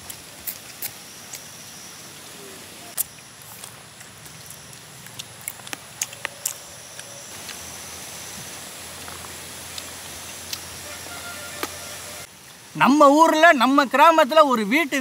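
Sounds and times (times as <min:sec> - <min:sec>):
faint high whine: 0:00.0 - 0:13.8
outdoor background hiss: 0:00.0 - 0:15.0
wet chewing and lip-smacking: 0:03.0 - 0:07.2.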